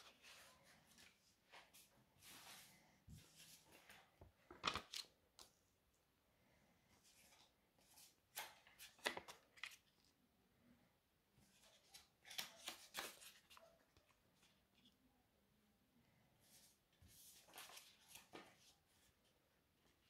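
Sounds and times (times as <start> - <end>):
paper banknotes crinkling: 11.6 - 13.7.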